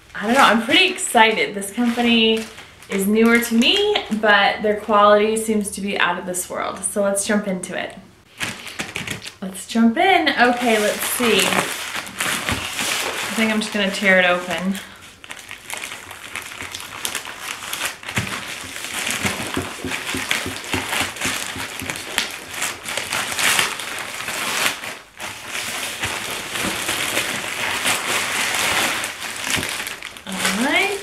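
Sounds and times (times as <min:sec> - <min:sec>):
plastic mailer crinkling: 0:01.6 - 0:04.2, 0:08.3 - 0:09.4, 0:10.4 - 0:31.0.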